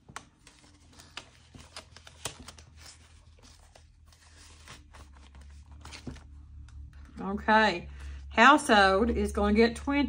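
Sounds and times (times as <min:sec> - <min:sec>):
paper rustling: 0:00.0 - 0:06.7.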